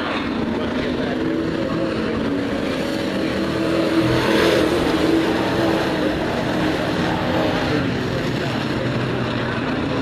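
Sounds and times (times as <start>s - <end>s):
racing truck engines droning: 0.0s - 10.0s.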